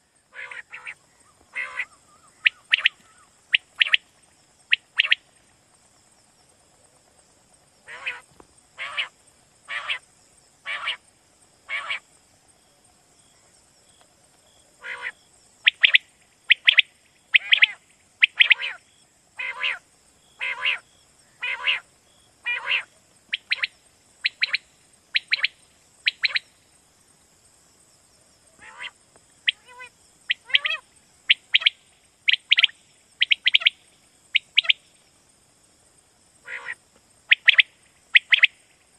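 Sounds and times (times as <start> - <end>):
steady high hiss: 0.0 - 38.9
quail calling: 0.3 - 4.0, 4.7 - 5.2, 7.9 - 8.2, 8.8 - 9.1, 9.7 - 10.0, 10.6 - 11.0, 11.7 - 12.0, 14.8 - 18.8, 19.4 - 19.8, 20.4 - 20.8, 21.4 - 24.6, 25.2 - 26.5, 28.6 - 33.8, 34.4 - 34.8, 36.4 - 38.6.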